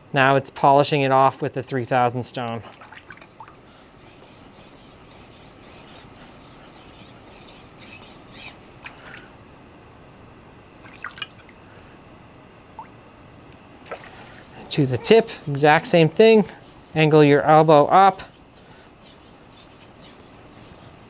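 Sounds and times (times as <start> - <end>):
knife scraping on whetstone: 3.4 - 8.6, 14.2 - 21.0.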